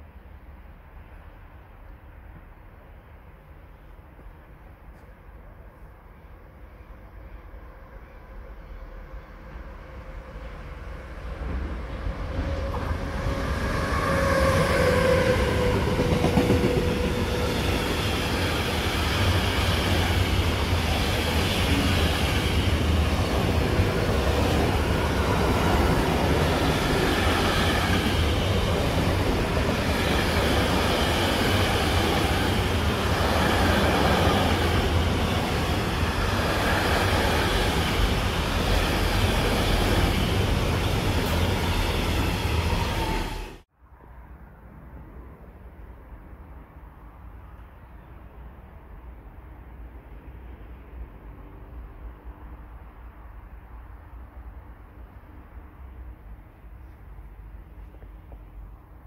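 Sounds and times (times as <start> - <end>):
train running past: 0.0 - 43.7.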